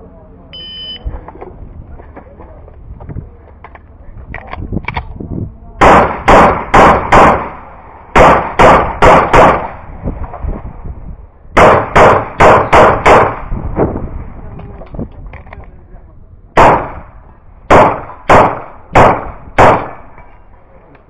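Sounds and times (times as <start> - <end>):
pistol shots: 5.8 - 9.9, 11.6 - 13.6, 16.6 - 20.3.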